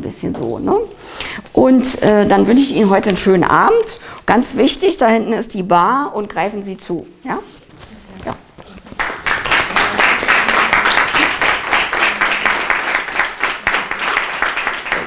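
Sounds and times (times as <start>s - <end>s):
crowd applauding: 8.9s - 15.0s.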